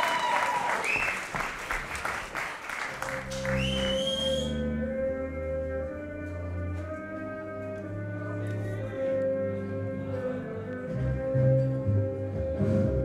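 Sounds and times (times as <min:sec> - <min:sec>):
audience applause: 0:00.0 - 0:04.5
stage music with held low notes: 0:01.0 - 0:13.0.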